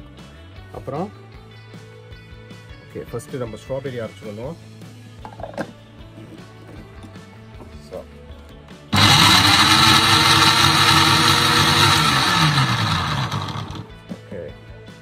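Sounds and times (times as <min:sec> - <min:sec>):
mixer grinder motor running: 0:09.0 - 0:13.9.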